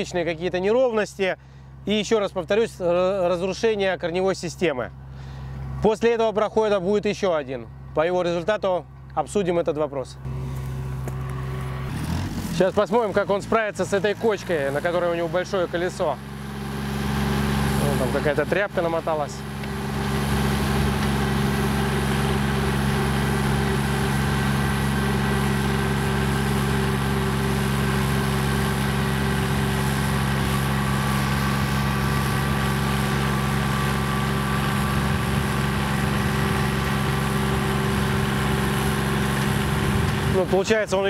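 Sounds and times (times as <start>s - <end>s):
tractor engine running: 0.0s - 41.0s
rotary tiller churning soil: 10.2s - 41.0s.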